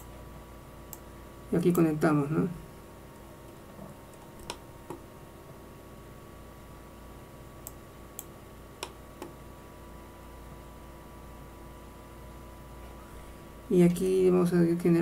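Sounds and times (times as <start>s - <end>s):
faint electrical hum: 0.0s - 15.0s
computer mouse clicking: 4.1s - 5.0s, 7.6s - 9.4s.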